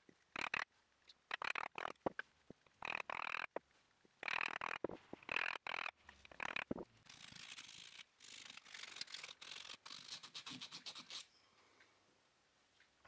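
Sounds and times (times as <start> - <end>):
sandpaper rubbing wood: 7.1 - 11.3.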